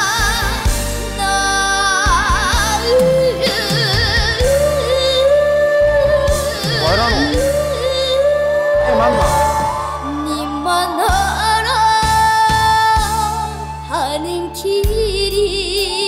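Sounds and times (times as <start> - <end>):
girl singing ballad: 0.0 - 16.0
band accompaniment: 6.4 - 7.5, 8.9 - 10.0.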